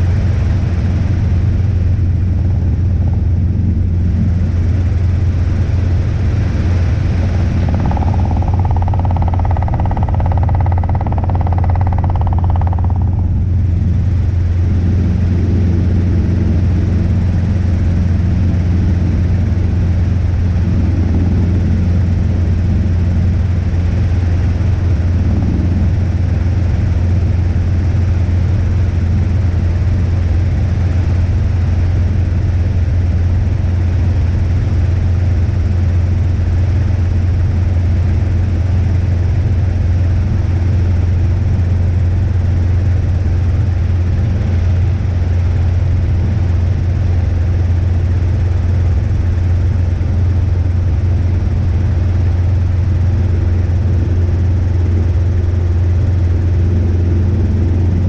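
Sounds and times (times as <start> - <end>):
higher hum: 0.0 - 20.6
constant rushing noise: 0.0 - 58.0
helicopter rotor and engine drone: 0.0 - 58.0.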